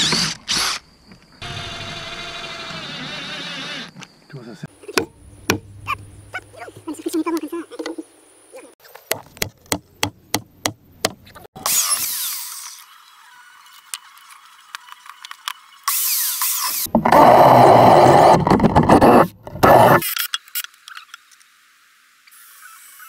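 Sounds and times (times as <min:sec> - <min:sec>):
sharp wood knocks: 0:05.0 - 0:06.0, 0:09.1 - 0:11.2.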